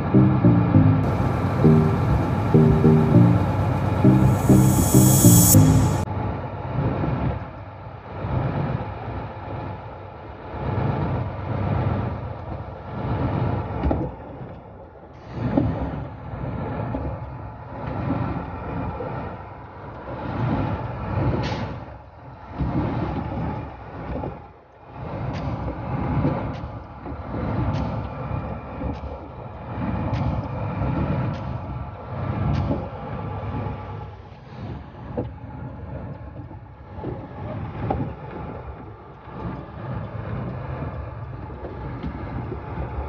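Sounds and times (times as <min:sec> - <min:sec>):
music: 0:00.0 - 0:06.1.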